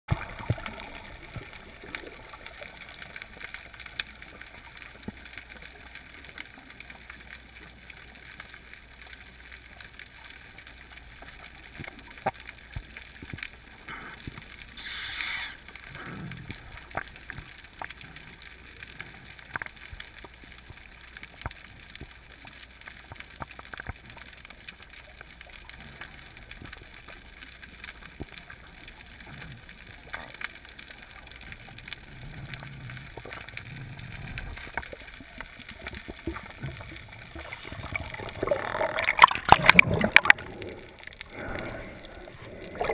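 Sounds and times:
bubbling water gush: 0.1 - 5.9, 14.7 - 18.2, 31.4 - 42.9
faint underwater hiss: 0.1 - 42.9
sharp clicks and crackles: 0.1 - 42.9.

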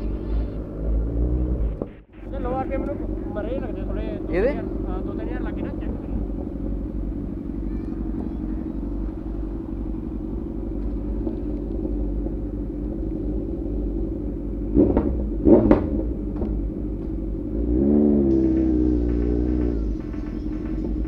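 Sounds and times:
motorcycle engine running: 0.0 - 21.0
loud engine bursts: 17.4 - 21.0.

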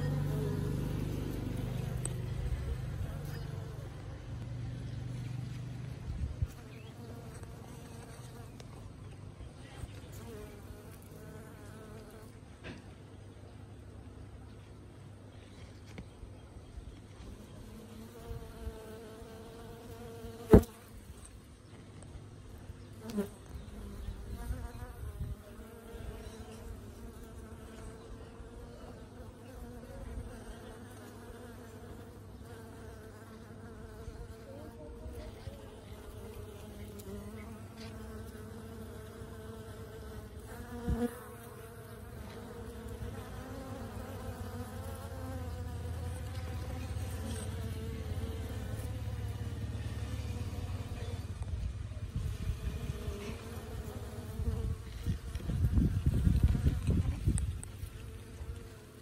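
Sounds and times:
bees buzzing: 17.2 - 21.2, 23.0 - 59.0.

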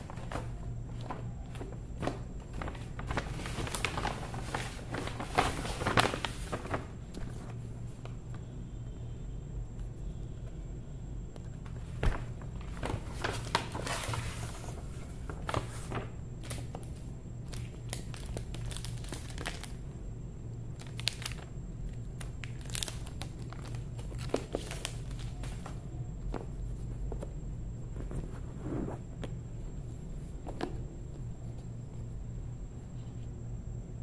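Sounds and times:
steady low hum: 0.0 - 34.0
plastic wrap crinkling and tearing: 2.0 - 6.9, 17.4 - 19.8, 20.8 - 25.7.

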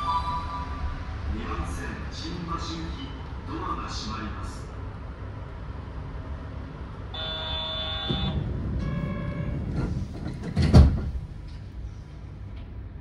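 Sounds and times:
low train hum: 0.0 - 13.0
two-tone door chime: 7.2 - 9.6
sliding doors thumping shut: 7.8 - 11.8.

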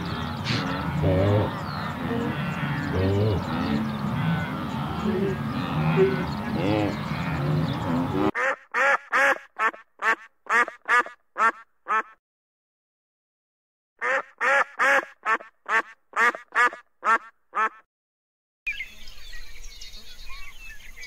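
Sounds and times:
duck quacking: 0.0 - 12.2, 14.0 - 17.9.

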